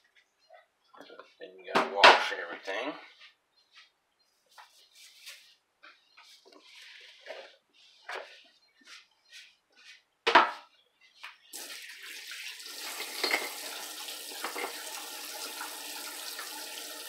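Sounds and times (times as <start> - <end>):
cloth wiping scrapes: 3.1 - 10.1
tap water running into sink: 11.5 - 17.0.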